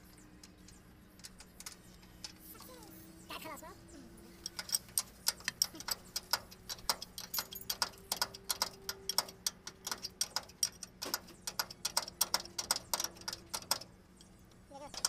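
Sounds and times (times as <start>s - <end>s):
socket ratchet clicking: 4.4s - 14.3s.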